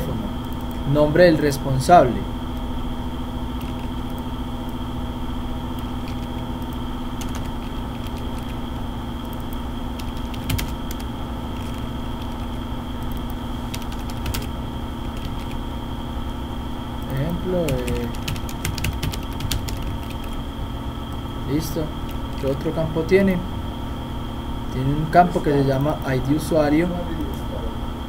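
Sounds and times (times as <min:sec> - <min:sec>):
electrical hum: 0:00.0 - 0:28.0
keyboard and mouse clicks: 0:00.4 - 0:00.8, 0:03.5 - 0:04.8, 0:05.7 - 0:15.6, 0:17.7 - 0:20.4.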